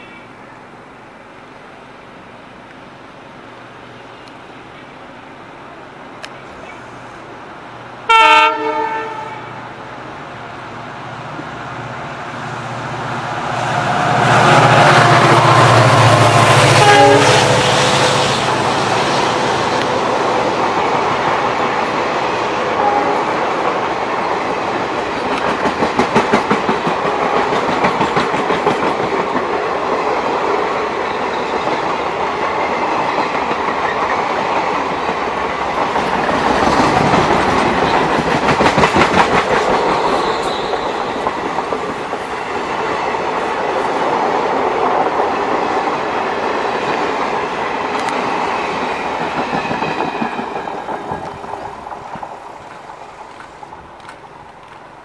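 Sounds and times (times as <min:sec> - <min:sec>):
train wheels clicking over rail joints: 0:23.5 - 0:55.0.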